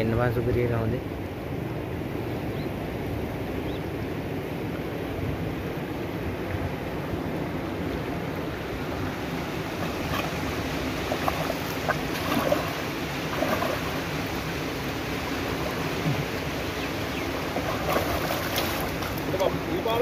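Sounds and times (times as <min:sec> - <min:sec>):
water splashing and sloshing: 0:06.3 - 0:20.0.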